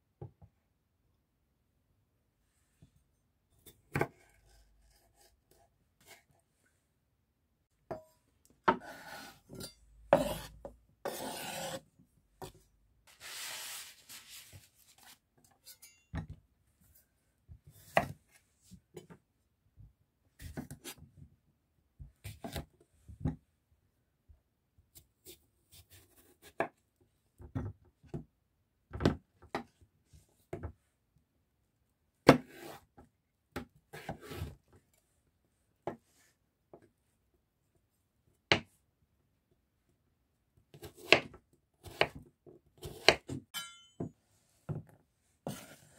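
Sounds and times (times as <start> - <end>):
scraping on cutting board: 8.8 - 11.8, 13.1 - 15.2, 45.4 - 45.9
knife chopping on wooden board: 10.2 - 10.5, 11.1 - 11.8, 42.8 - 43.8.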